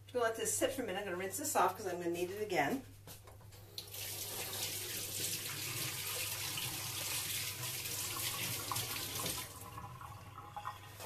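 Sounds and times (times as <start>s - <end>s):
kitchen tap running: 3.7s - 11.0s
water splashing on blender: 3.9s - 11.0s.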